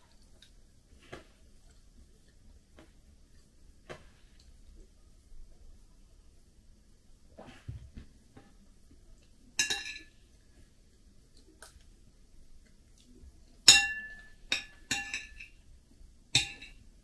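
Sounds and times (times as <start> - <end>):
metal spoon clinking on plate: 9.6 - 10.2, 13.7 - 15.6, 16.4 - 16.9.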